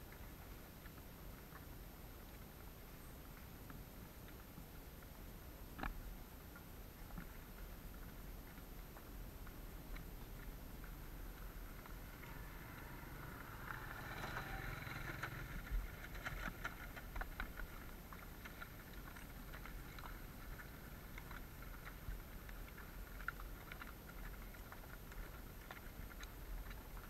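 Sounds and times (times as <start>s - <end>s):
hooves clicking on stones: 6.6s - 27.0s.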